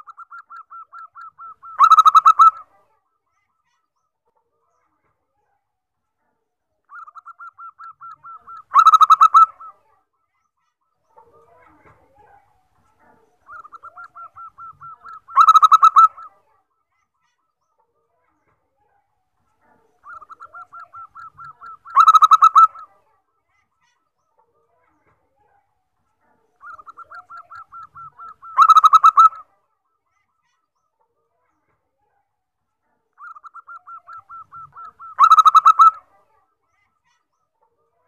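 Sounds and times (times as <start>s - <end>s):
dove cooing song: 0.0s - 2.7s, 6.9s - 9.8s, 13.0s - 16.4s, 20.0s - 23.0s, 26.6s - 29.5s, 33.2s - 36.1s.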